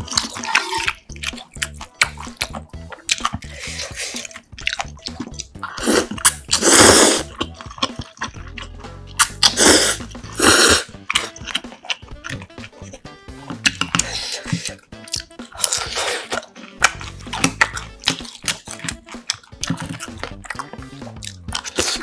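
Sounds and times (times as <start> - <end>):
person slurping noodles: 0.0 - 1.4, 2.9 - 4.4, 5.2 - 12.0, 13.6 - 18.8, 19.6 - 22.0
wet chewing clicks: 0.0 - 22.0.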